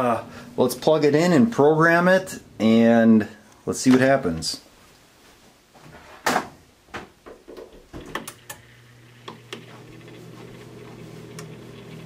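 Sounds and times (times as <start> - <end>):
refrigerator humming: 8.0 - 12.0.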